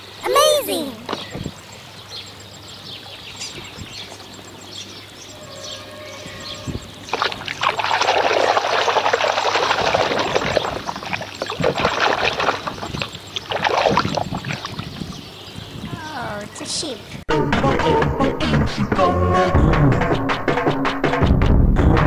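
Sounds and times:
water splashing in a plastic basin: 7.1s - 15.1s.

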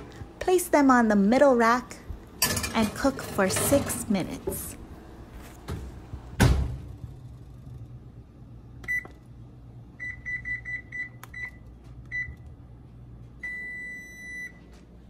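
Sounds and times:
oven door thud: 5.6s - 7.0s
control panel beeps: 8.8s - 9.2s, 10.0s - 12.4s.

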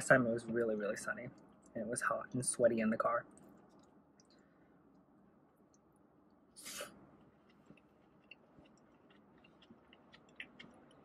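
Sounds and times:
faint chewing: 3.3s - 11.0s
wet mouth clicks: 7.4s - 11.0s.

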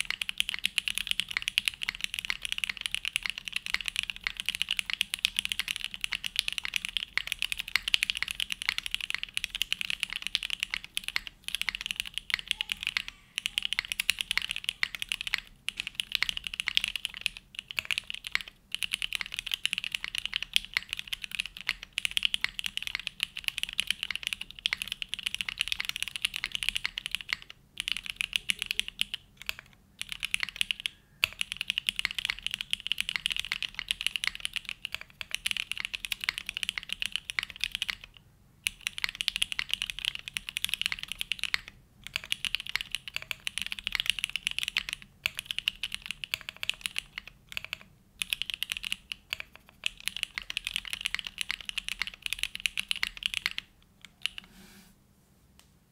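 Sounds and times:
mechanical keyboard typing: 0.0s - 54.5s.

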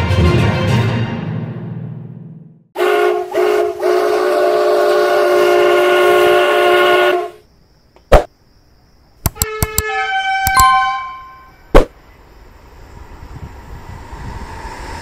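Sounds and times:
two-tone train horn: 2.8s - 7.4s, 9.4s - 11.6s
sharp click: 9.2s - 9.9s, 10.5s - 10.8s.

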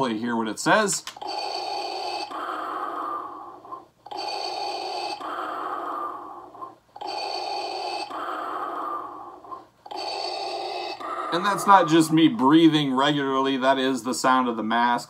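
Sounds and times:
mechanical breathing: 1.1s - 12.4s.

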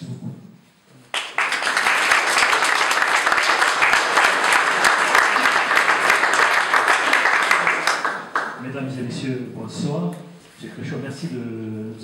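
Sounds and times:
audience applauding: 1.1s - 8.7s.

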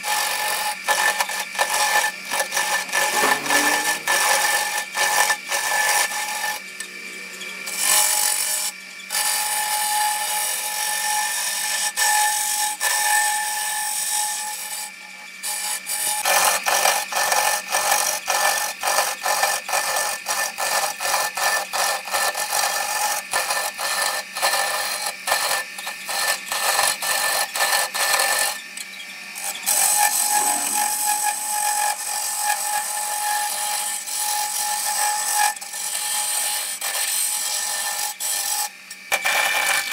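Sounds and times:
chisel scraping spinning wood: 0.0s - 39.9s
wood lathe motor hum: 0.0s - 39.9s.

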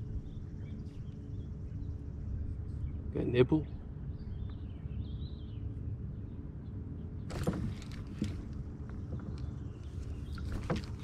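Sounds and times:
steady low rumble: 0.0s - 11.0s
fishing rod knocks and rustles: 7.3s - 11.0s.

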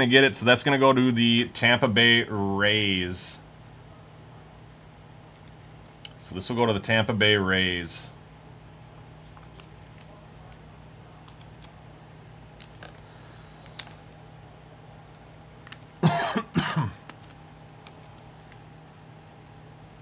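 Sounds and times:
low steady hum: 0.0s - 20.0s
man coughing: 16.0s - 17.0s.

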